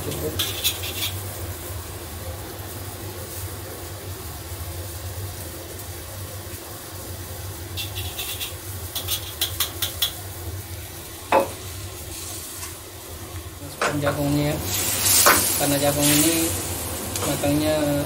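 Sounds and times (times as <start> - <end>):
sauce simmering in wok: 0.0 - 18.0
metal spoon tapping wok: 7.8 - 10.2.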